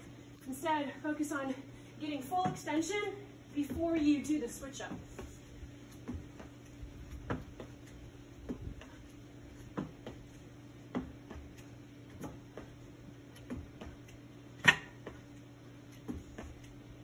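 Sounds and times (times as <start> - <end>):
sneakers knocking on wooden box: 7.2 - 7.8, 9.7 - 10.2.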